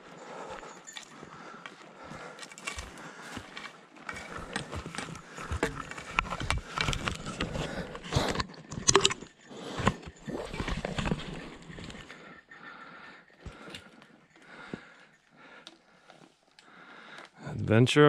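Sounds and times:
footsteps on rocky ground: 0.0 - 8.1
trekking pole tips clicking: 1.7 - 12.6, 13.2 - 17.4.

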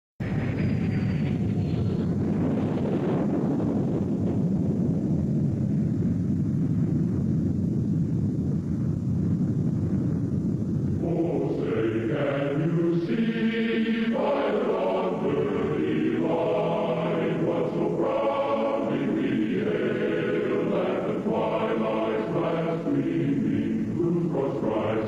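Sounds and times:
choir singing anthem: 11.0 - 25.0.

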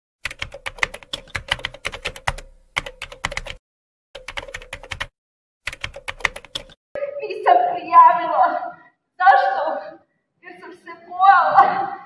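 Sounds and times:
keyboard typing: 0.2 - 3.6, 4.2 - 6.8.

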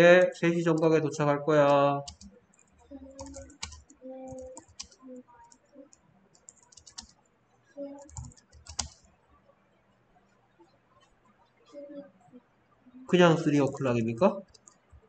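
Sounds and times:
keyboard typing: 0.0 - 7.2, 7.8 - 9.1, 14.3 - 15.0.

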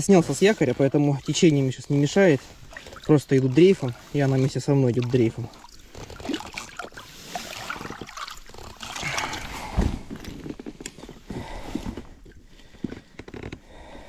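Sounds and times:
water sloshing and splashing: 0.0 - 14.0
dull thump: 9.6 - 10.2.

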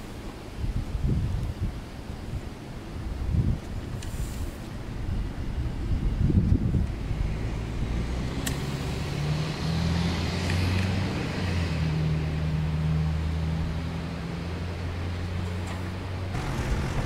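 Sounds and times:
low engine drone: 7.0 - 17.0
sharp click: 8.4 - 8.7.

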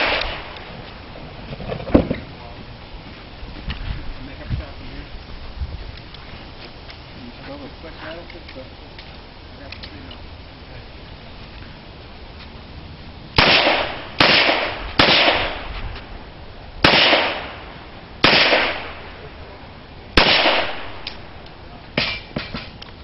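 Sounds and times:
handgun shots with echo: 0.0 - 0.7, 13.4 - 15.7, 16.8 - 17.6, 18.2 - 19.0, 20.2 - 21.3.

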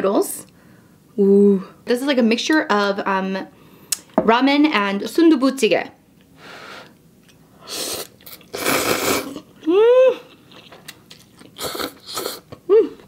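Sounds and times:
slurping noodles: 7.6 - 9.5, 11.6 - 12.5
person humming: 9.6 - 10.3, 11.7 - 13.0.

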